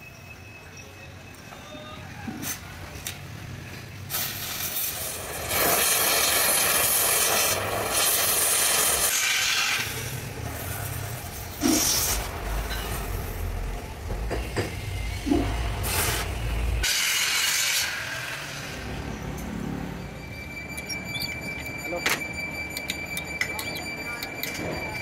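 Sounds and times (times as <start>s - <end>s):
cutting torch hissing on steel: 4.1s - 19.0s.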